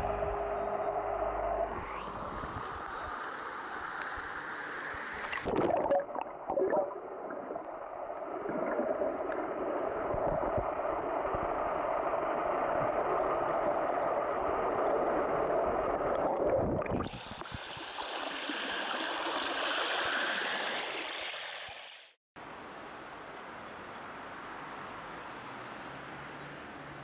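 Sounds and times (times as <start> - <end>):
underwater gurgling wash: 2.1 - 22.2.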